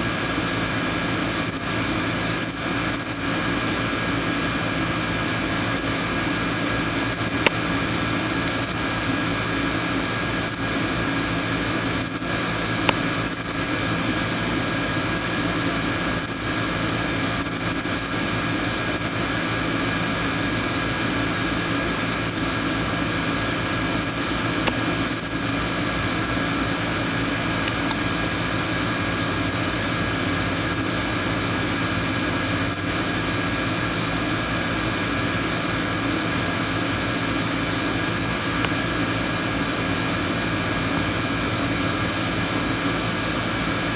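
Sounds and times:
machine hum: 0.0s - 43.9s
cardinals chirping: 2.4s - 3.3s, 8.6s - 8.8s, 13.2s - 13.8s, 17.4s - 18.2s, 25.0s - 26.4s, 30.6s - 30.9s, 39.4s - 40.2s.

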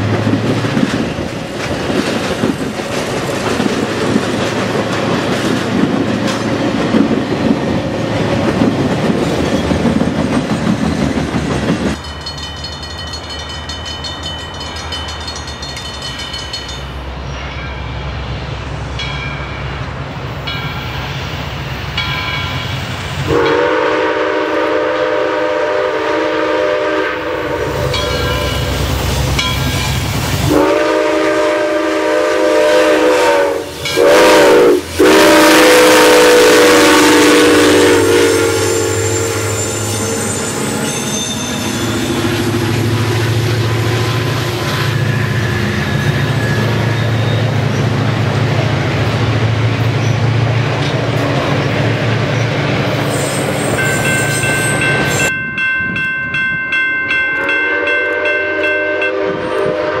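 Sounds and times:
train wheels rumbling on rail: 0.0s - 60.0s
steam locomotive chime whistle: 22.0s - 47.9s, 53.0s - 60.0s.

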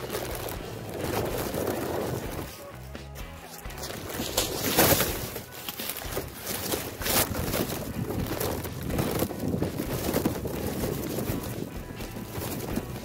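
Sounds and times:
phone scraping on straw stubble: 0.0s - 13.0s
wind buffeting microphone: 6.2s - 13.0s.

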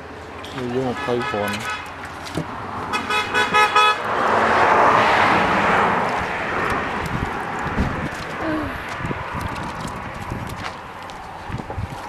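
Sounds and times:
vehicle passing on road: 0.0s - 12.0s
vehicle horn: 0.8s - 1.9s, 2.9s - 4.1s.

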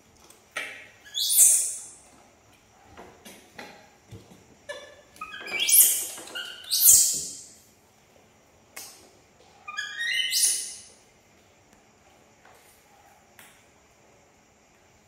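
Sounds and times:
baby monkey screaming: 1.1s - 1.9s, 5.2s - 7.4s.

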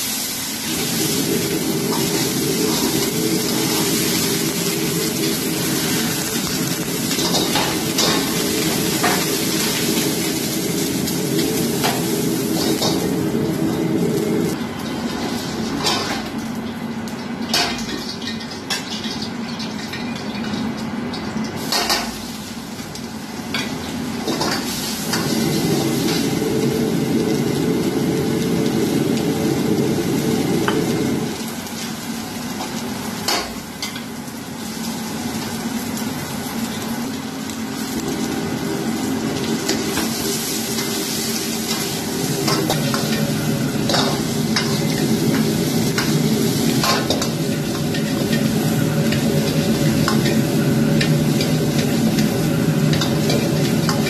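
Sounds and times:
gas burner roaring: 0.0s - 18.8s, 21.0s - 54.0s
food sizzling in wok: 0.0s - 54.0s.

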